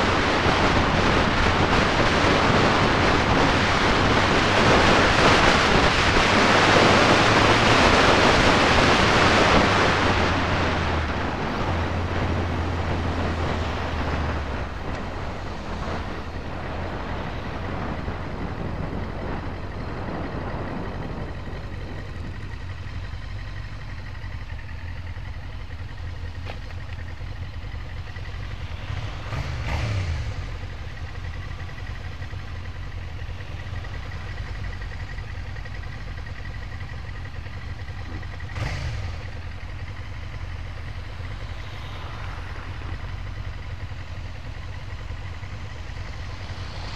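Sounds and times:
motorcycle engine running: 0.0 - 46.9.

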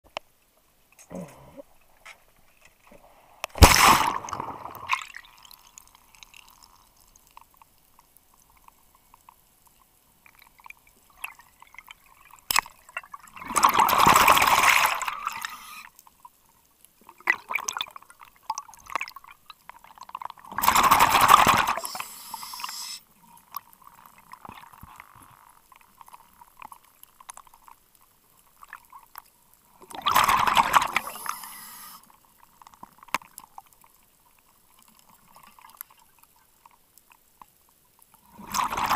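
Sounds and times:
underwater exhaled bubbles: 3.0 - 6.7, 10.3 - 15.9, 29.7 - 31.9, 38.2 - 38.9
underwater entry splash churn: 3.6 - 5.2, 20.6 - 21.8.

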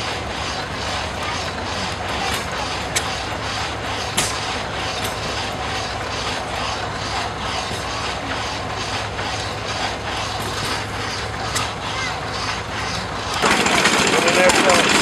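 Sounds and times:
engine humming: 0.0 - 15.0
saw blade rasping through log: 0.0 - 15.0.

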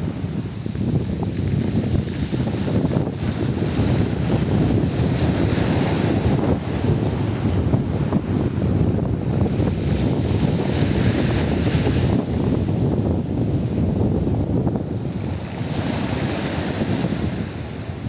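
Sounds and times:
waves washing up shore: 0.0 - 18.0
wind buffeting microphone: 0.0 - 18.0.

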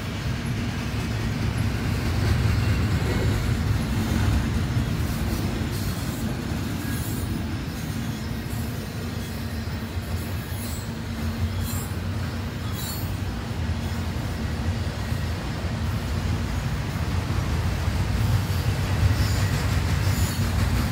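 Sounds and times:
train wheels rumbling on rails: 0.0 - 20.9
high-pitched wheel squeals: 5.4 - 13.3.

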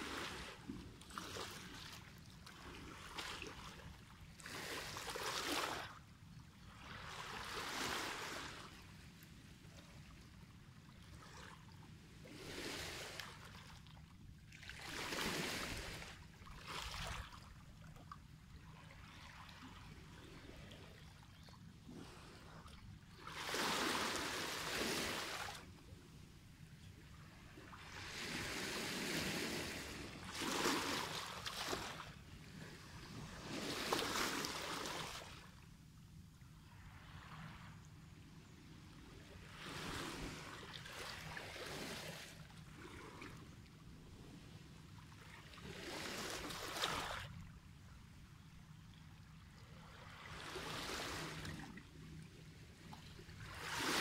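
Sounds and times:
waves washing over stony shore: 53.4 - 54.0.

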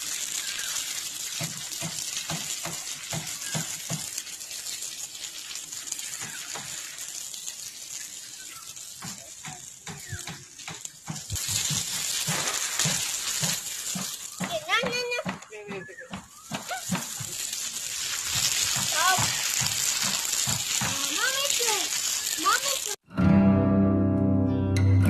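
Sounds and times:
hose water spraying on pebbles: 0.0 - 23.0.

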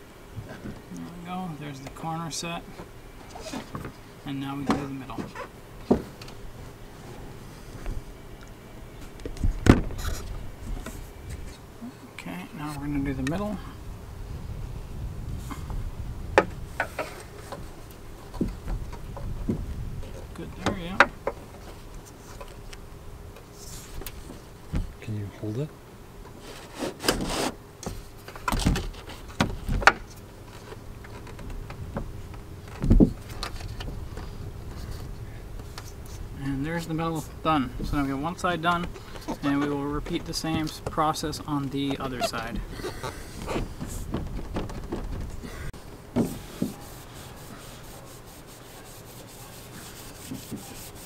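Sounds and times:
rubs scrapes and squeaks: 2.7 - 3.9, 4.8 - 5.6, 9.4 - 11.7, 23.5 - 24.5, 26.4 - 31.6, 32.7 - 45.5, 46.2 - 51.0
rag rubbing on a surface: 26.4 - 27.6, 46.2 - 51.0
heavy bump: 41.8 - 46.8.

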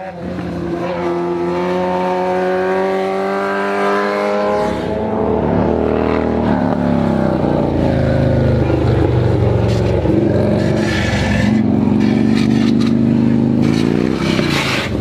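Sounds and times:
vehicle engine accelerating: 0.0 - 15.0.

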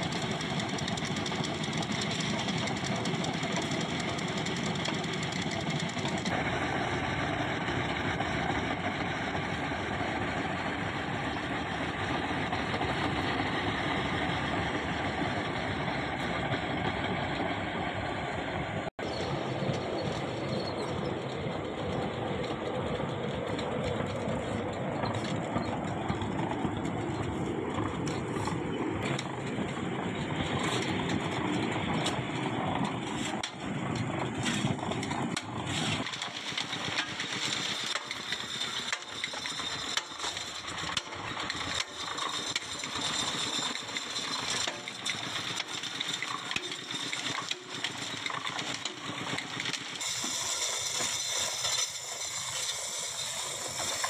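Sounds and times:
machine clattering and knocks: 0.0 - 6.4, 21.4 - 52.1
pipe machine running: 0.0 - 17.6, 19.0 - 54.0.

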